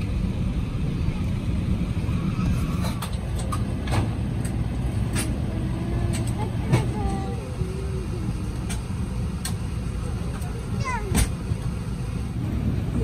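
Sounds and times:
low rumble of aircraft taxiing: 0.0s - 13.0s.

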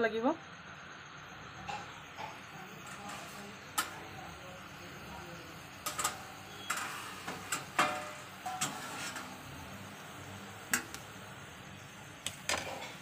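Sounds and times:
spoon scraping metal pan: 1.7s - 4.0s, 5.8s - 9.8s.

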